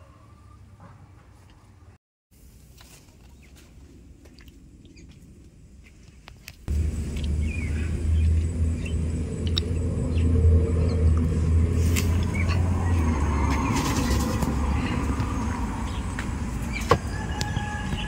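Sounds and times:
loud steady low rumble: 0:06.7 - 0:16.6
bird chirps: 0:07.2 - 0:11.1.

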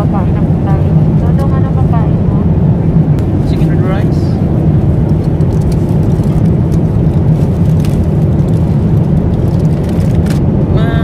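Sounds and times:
jet engine and airflow rumble: 0:00.0 - 0:11.0.

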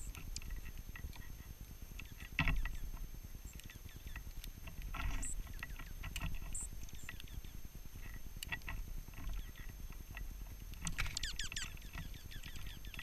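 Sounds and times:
bird chips and twitters: 0:02.0 - 0:04.3, 0:05.2 - 0:07.6, 0:11.0 - 0:13.0.

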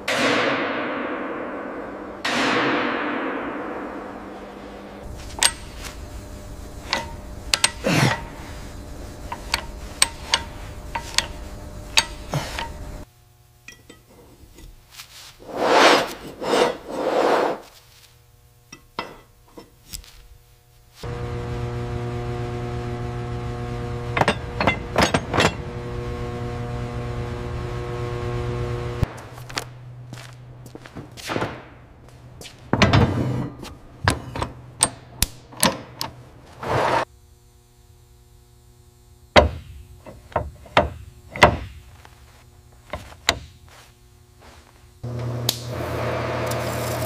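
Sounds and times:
steady machine hum: 0:00.0 - 0:47.0
scraping rubs: 0:14.5 - 0:18.2, 0:36.4 - 0:37.1.

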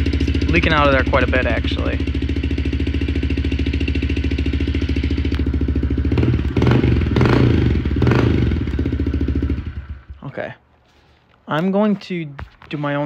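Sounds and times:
engine revving: 0:00.0 - 0:10.2
motorcycle engine idling: 0:00.0 - 0:10.5.

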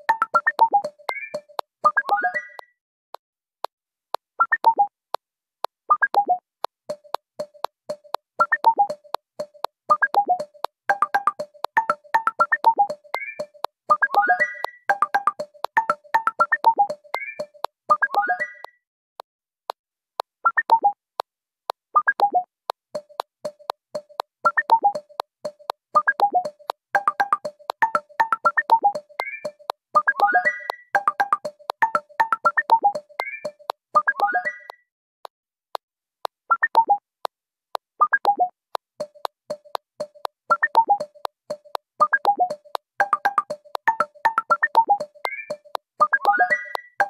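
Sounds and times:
sharp clicks: 0:00.0 - 0:02.7, 0:05.6 - 0:18.8, 0:22.0 - 0:34.8, 0:38.0 - 0:47.0
synthesizer plucked melody: 0:00.0 - 0:02.7, 0:05.9 - 0:18.7, 0:23.0 - 0:34.8, 0:38.0 - 0:47.0
ticking beat: 0:00.0 - 0:02.7, 0:04.4 - 0:18.8, 0:19.7 - 0:34.8, 0:36.2 - 0:37.0, 0:37.8 - 0:47.0.

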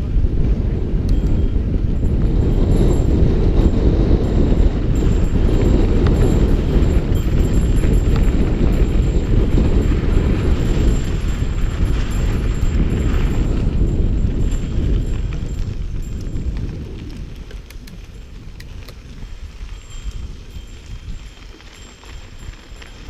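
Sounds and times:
tyres on dirt trail: 0:00.0 - 0:23.0
wind buffeting microphone: 0:00.0 - 0:23.0.

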